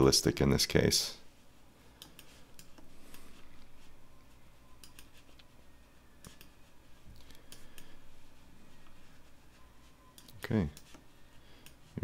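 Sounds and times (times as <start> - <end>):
low room hum: 0.0 - 12.0
computer mouse clicks: 2.0 - 3.2, 4.8 - 5.5, 6.2 - 6.6, 7.2 - 8.0.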